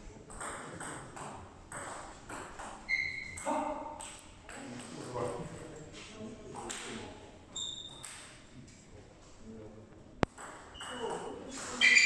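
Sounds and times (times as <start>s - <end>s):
short high squeak: 2.9s - 3.4s, 7.6s - 8.0s, 11.8s - 12.0s.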